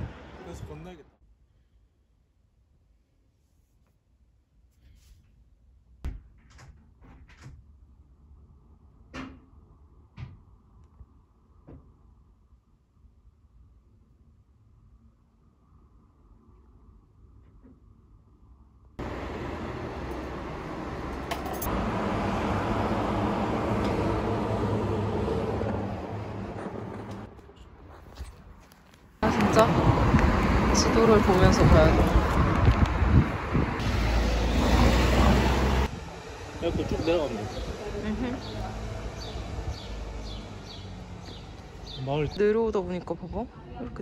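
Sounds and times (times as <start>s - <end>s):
vehicle engine and tyres rumbling: 19.0s - 42.7s.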